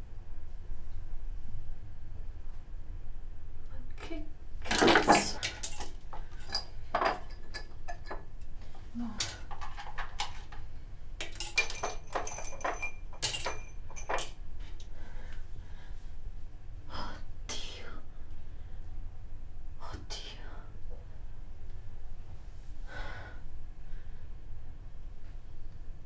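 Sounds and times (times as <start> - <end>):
small items and tweezers rattling: 9.2 - 10.6, 11.2 - 14.4.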